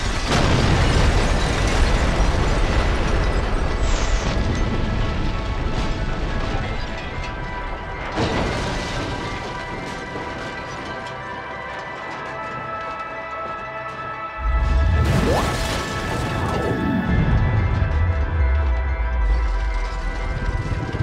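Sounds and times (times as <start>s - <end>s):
background music: 4.3s - 21.0s.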